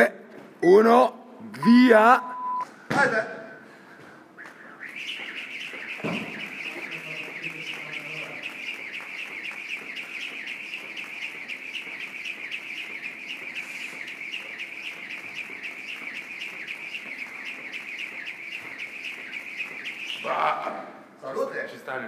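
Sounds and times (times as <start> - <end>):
jump rope whirring: 4.4 - 20.7
rope ticking on gym floor: 4.4 - 20.7.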